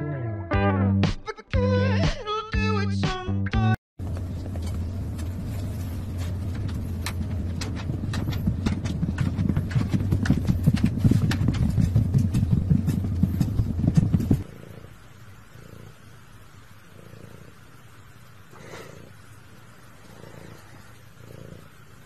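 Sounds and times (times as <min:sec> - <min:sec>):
paw thumps patter: 0:04.0 - 0:14.4
wooden wheel rumbling: 0:04.0 - 0:14.4.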